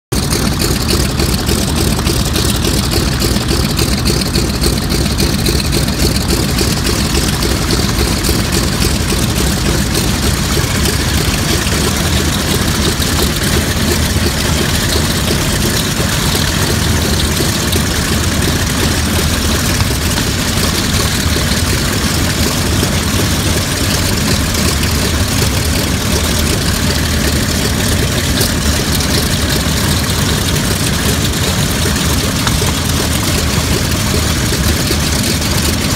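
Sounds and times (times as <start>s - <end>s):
propeller aircraft engine idling: 0.1s - 35.9s.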